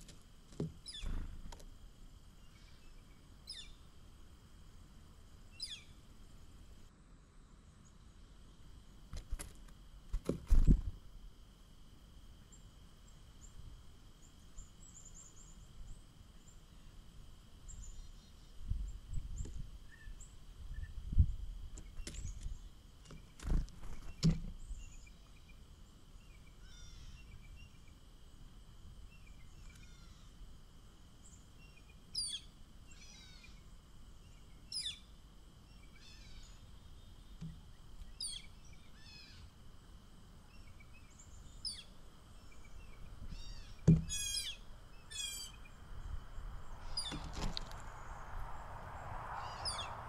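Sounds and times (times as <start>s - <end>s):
songbirds chirping: 0.0s - 9.1s, 11.3s - 50.0s
dull thumps: 43.8s - 44.2s.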